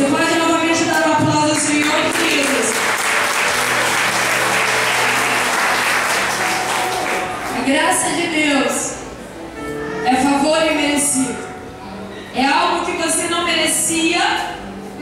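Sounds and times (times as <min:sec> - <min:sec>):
congregation applauding: 0:01.5 - 0:07.6.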